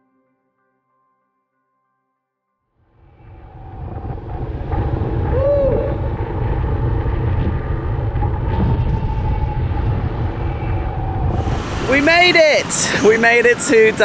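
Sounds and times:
motorbike engine and road rumble: 2.9s - 14.0s
wind rushing over microphone: 2.9s - 14.0s.

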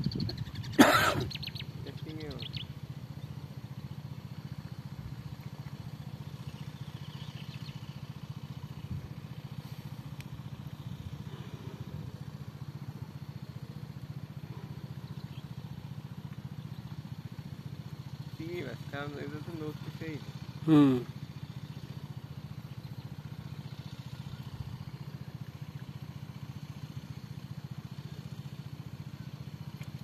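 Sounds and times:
small engine running: 0.0s - 30.0s.

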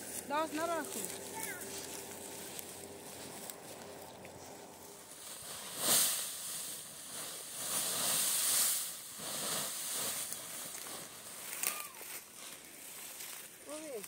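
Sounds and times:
dry straw rustling: 0.0s - 14.0s.

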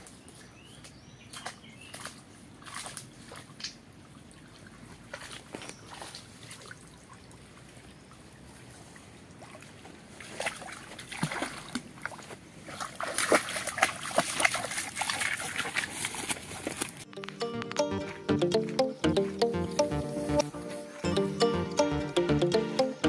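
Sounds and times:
dog splashing through water: 1.3s - 3.7s, 4.5s - 7.2s, 9.4s - 17.0s
music: 17.1s - 23.0s.

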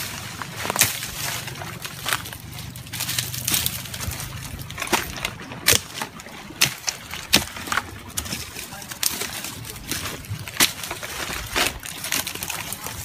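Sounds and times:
leaves and branches rustling: 0.0s - 13.0s
twigs snapping: 0.0s - 13.0s.

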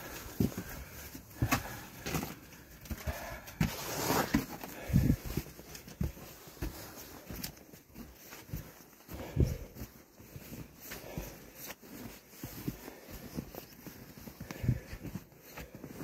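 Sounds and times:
footsteps on snowy rocky trail: 0.0s - 16.0s
crunch of snow: 2.6s - 5.2s.

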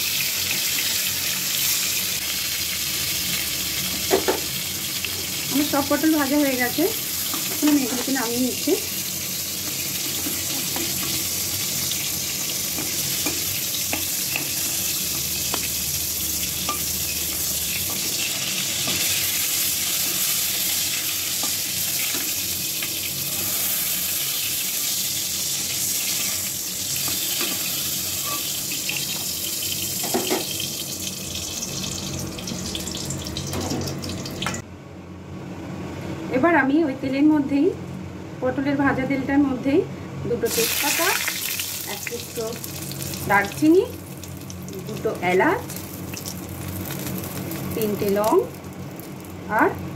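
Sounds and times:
vegetables sizzling in hot oil: 0.0s - 34.6s, 40.5s - 49.9s
metal spatula scraping pan: 27.4s - 28.6s.

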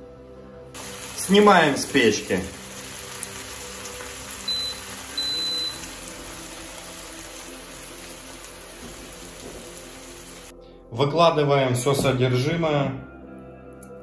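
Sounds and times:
pan hissing: 0.8s - 10.5s.

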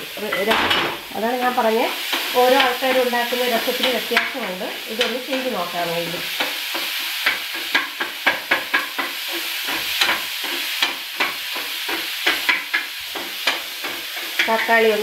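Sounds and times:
food sizzling in oil: 0.0s - 15.0s
spatula scraping a frying pan: 6.2s - 15.0s.

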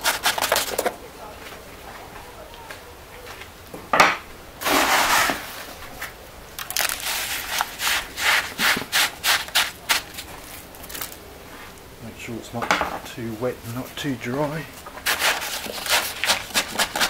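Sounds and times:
gritty scraping of cement mix: 0.0s - 1.0s, 4.6s - 11.8s, 13.2s - 17.0s
short gritty crunches: 4.6s - 11.8s.

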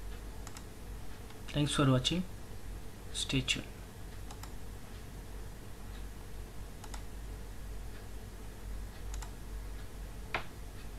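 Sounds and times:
low room hum: 0.0s - 10.9s
microphone hiss: 0.0s - 10.9s
faint computer clicks: 0.4s - 1.6s, 4.2s - 4.6s, 6.8s - 7.1s, 9.0s - 9.4s.

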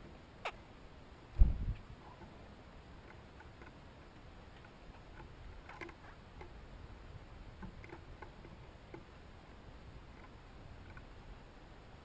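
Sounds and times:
birds pecking on wooden rail: 1.8s - 11.4s.

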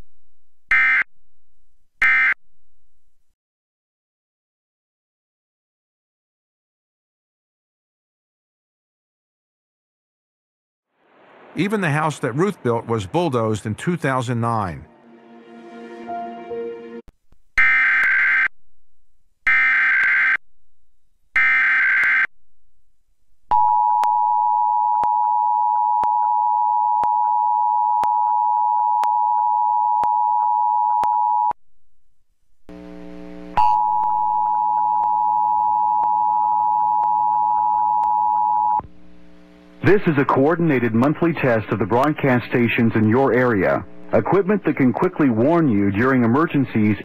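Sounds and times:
low buzz: 32.6s - 34.9s.

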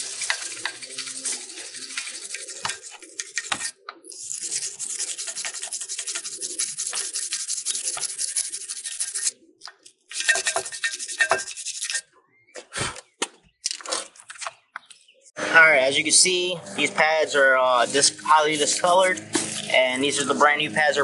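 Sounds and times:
brush scrubbing brake caliper: 0.0s - 9.4s, 10.1s - 12.0s, 17.3s - 20.4s.

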